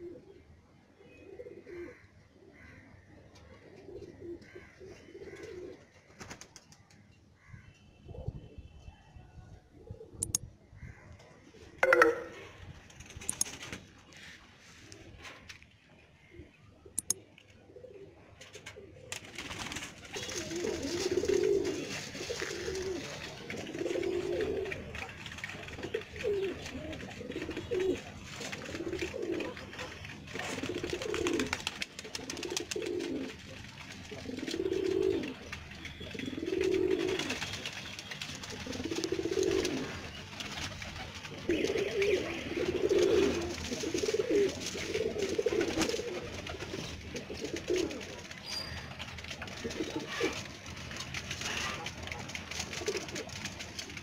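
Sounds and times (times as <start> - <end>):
pigeons cooing: 0.0 - 0.4, 1.2 - 2.7, 3.4 - 6.5, 17.6 - 54.0.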